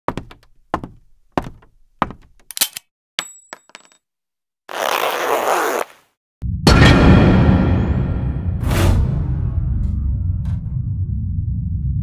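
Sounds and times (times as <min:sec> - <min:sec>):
metallic hits and clinks: 0:02.5 - 0:04.0.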